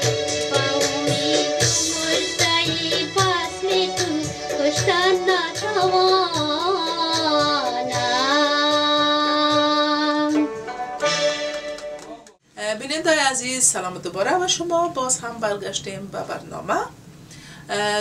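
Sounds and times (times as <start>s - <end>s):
person singing: 0.0s - 10.4s
instrumental accompaniment: 0.0s - 12.4s.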